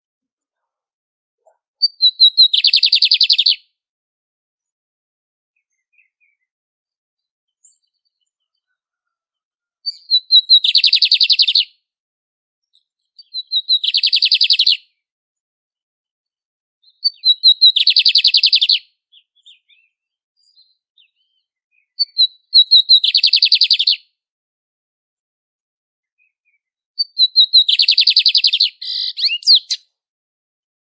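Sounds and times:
bird singing high notes and trill: 1.8s - 3.6s, 16.8s - 24.0s, 26.5s - 29.8s.

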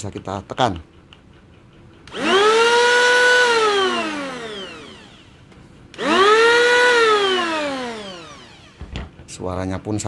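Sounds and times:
electric planer whining: 2.1s - 5.4s, 6.0s - 8.9s.

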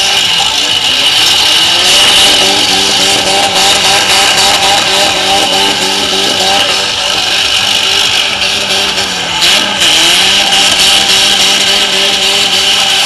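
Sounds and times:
car engine revving hard: 0.0s - 13.0s.

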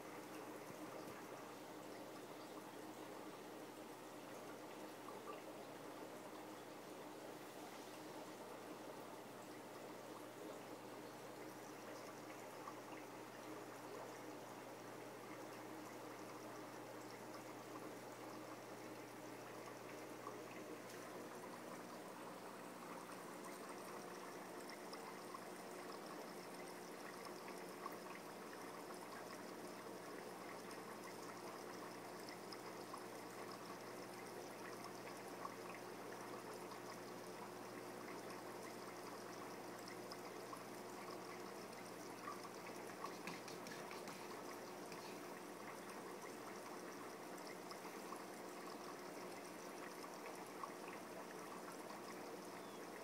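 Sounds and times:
faint trickling water: 0.0s - 53.0s
faint clicks: 38.2s - 50.7s.

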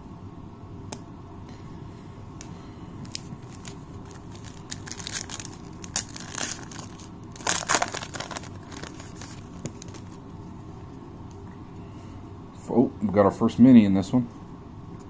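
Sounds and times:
foil wrapper tearing and crinkling: 3.0s - 10.2s.

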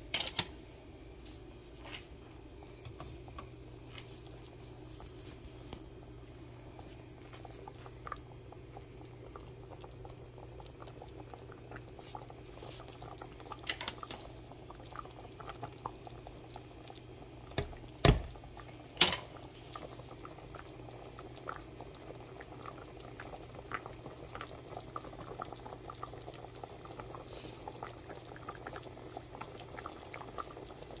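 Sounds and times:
gravy bubbling in a pan: 1.7s - 31.0s.

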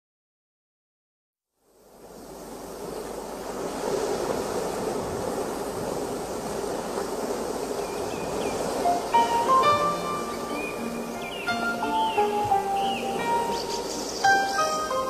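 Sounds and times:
ocean surf rushing: 1.9s - 15.0s
musical notes: 8.8s - 15.0s.

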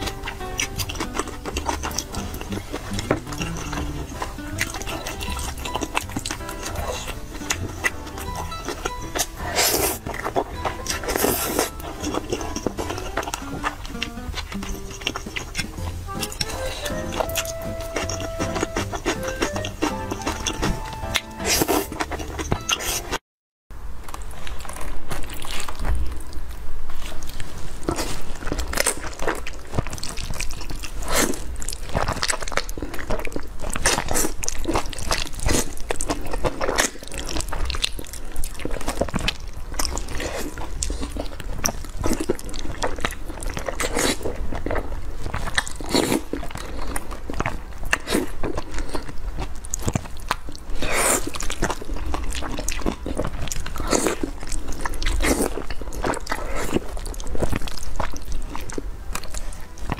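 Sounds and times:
chewing: 0.0s - 23.2s, 24.0s - 59.9s
slurping noodles: 9.3s - 13.8s, 39.8s - 49.2s, 50.6s - 58.2s.

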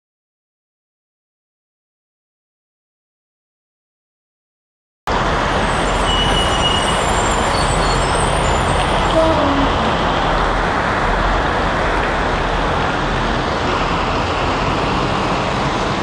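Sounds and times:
heavy rain on a street: 5.1s - 16.0s
traffic on wet road: 5.1s - 16.0s
truck passing: 5.1s - 16.0s.

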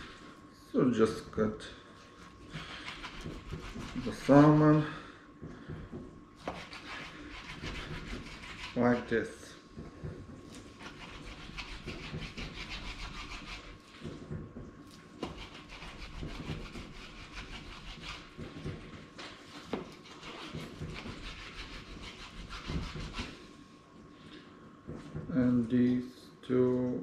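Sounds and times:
knife sawing through fish: 2.6s - 4.8s, 6.4s - 9.1s, 10.7s - 13.8s, 15.2s - 18.4s, 19.9s - 23.4s.

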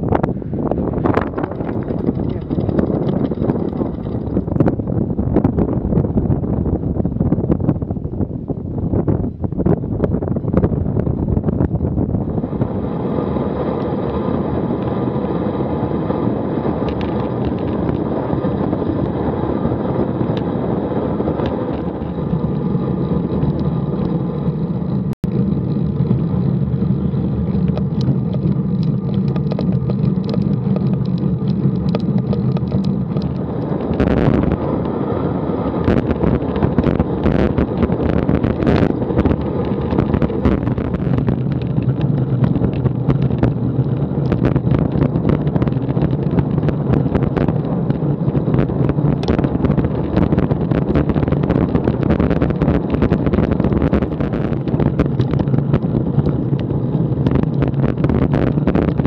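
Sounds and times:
bicycle tyre and road noise: 0.0s - 59.0s
wind on microphone: 0.0s - 59.0s
knocks and rattles: 1.1s - 4.9s.

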